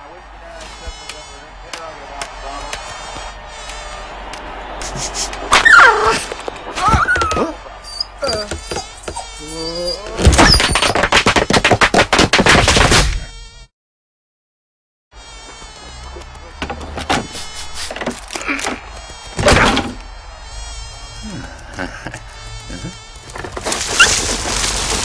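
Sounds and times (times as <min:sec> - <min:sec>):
housefly buzzing: 0:15.2 - 0:25.0.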